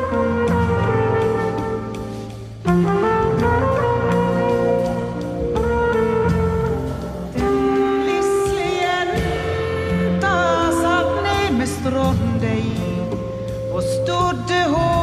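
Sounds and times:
trumpet long held notes: 0.0 - 11.5
double bass: 0.0 - 15.0.

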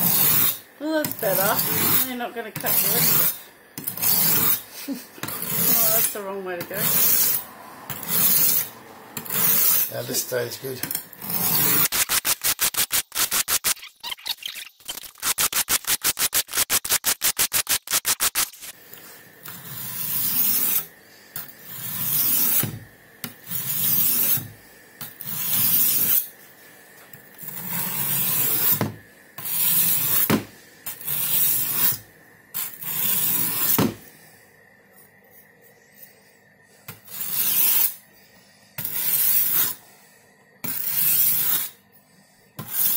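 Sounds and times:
knife blade on sharpening plate: 40.7 - 41.8.

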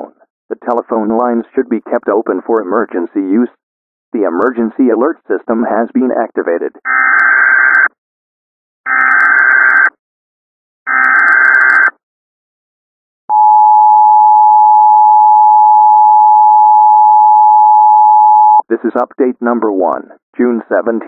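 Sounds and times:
two-tone attention signal: 13.3 - 18.6.

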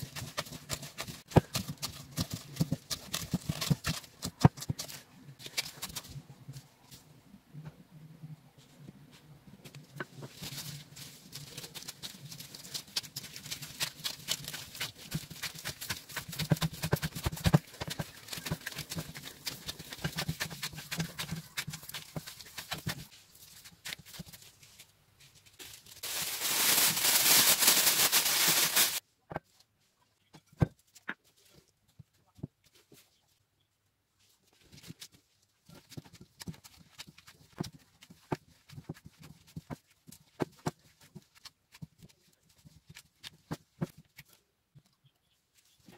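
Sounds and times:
dough being kneaded: 0.0 - 7.0, 8.6 - 29.6, 34.2 - 45.9
steady hiss: 26.0 - 29.0.

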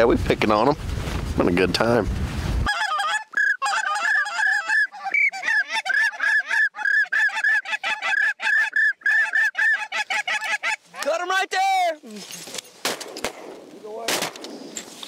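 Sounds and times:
goose honking: 2.7 - 10.9.

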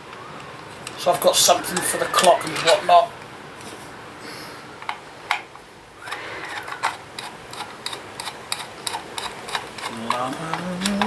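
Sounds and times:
plastic clicking and tapping: 7.8 - 11.0.

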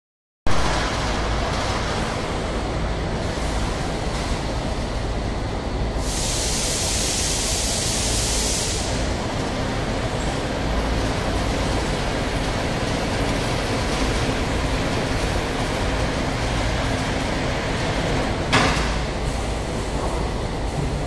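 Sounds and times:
filling machine drone: 0.5 - 21.0
loud high hiss: 6.0 - 10.1.

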